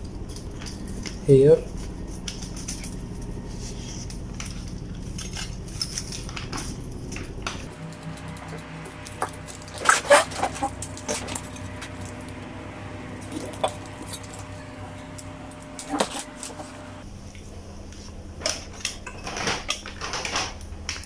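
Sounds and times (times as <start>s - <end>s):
heater parts clicking and rattling: 0.0s - 21.0s
steady low hum: 0.0s - 21.0s.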